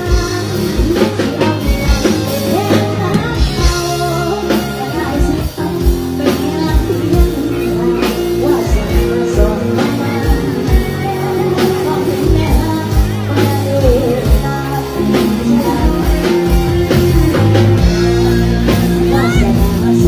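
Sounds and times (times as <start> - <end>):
live band music: 0.0 - 20.0.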